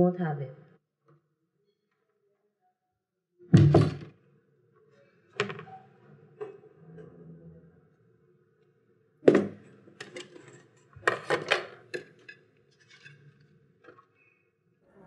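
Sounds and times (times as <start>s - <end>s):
sharp knock on desk: 3.6s - 4.0s.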